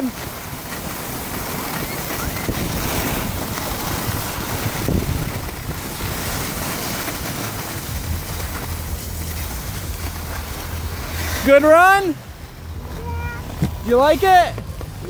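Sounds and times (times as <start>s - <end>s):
wind over microphone: 0.0s - 11.2s
skis sliding over snow: 0.0s - 15.0s.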